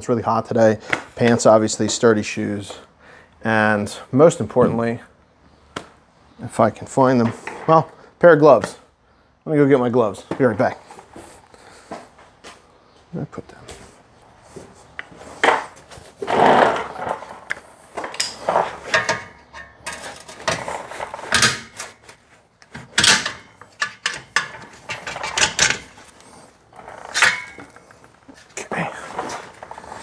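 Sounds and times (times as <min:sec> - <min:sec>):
work gloves rustling: 0:10.1 - 0:30.0.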